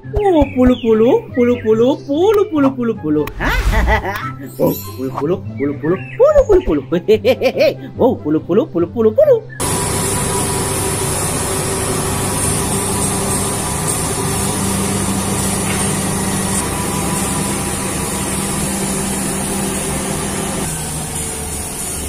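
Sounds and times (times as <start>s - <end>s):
bulldozer diesel engine running: 9.6s - 22.0s.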